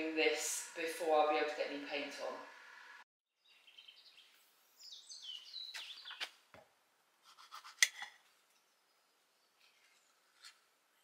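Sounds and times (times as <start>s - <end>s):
birds chirping: 3.4s - 6.4s.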